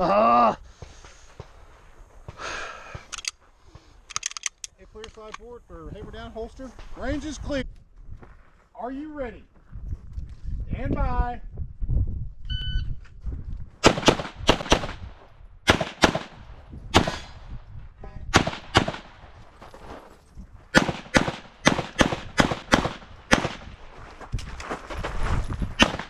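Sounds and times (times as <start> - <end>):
pistol shots: 13.8 - 17.4, 18.3 - 19.2, 20.7 - 23.8, 25.8 - 26.0.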